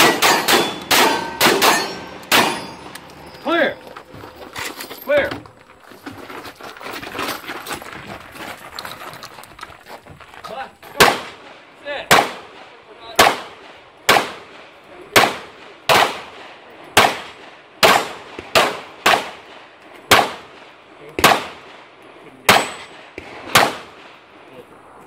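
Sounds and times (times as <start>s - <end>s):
pistol shots with echo: 0.0s - 3.1s, 11.0s - 21.9s, 22.5s - 24.3s.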